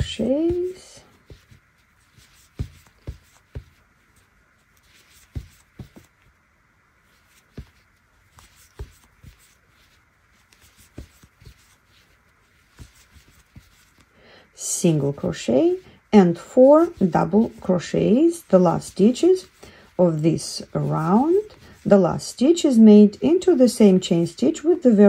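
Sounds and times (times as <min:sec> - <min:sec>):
yarn rubbing: 0:00.0 - 0:25.0.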